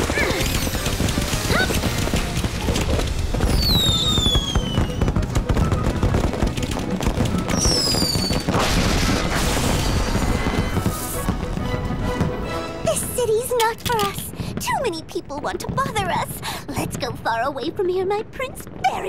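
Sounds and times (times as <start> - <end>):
cartoon fireworks bursting: 0.0 - 16.2
falling whistles: 3.4 - 6.1, 7.5 - 8.6
orchestral score music: 4.8 - 13.5.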